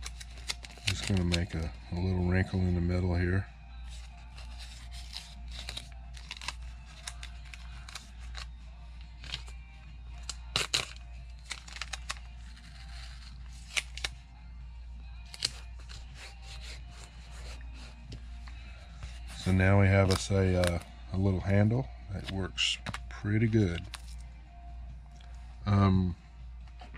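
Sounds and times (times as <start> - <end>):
masking tape crinkling: 0.0 - 1.6, 3.9 - 14.2, 19.0 - 20.9.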